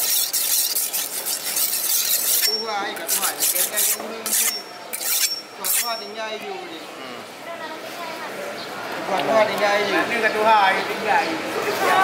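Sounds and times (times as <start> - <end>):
knife scraping on whetstone: 0.0 - 6.1.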